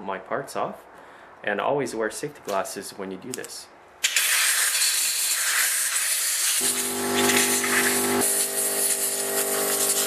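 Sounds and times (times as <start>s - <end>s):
compressed air hissing from blow gun: 4.0s - 10.0s.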